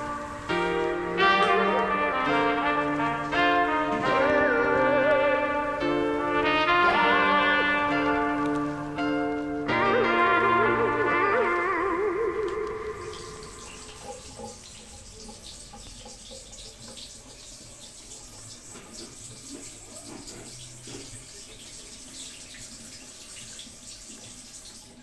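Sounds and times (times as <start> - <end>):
tap water splashing into sink: 12.4 - 25.0.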